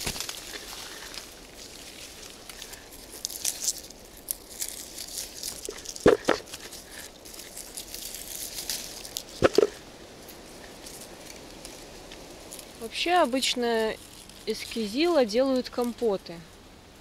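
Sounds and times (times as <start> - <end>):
leaves and twigs rustling: 0.0 - 17.0.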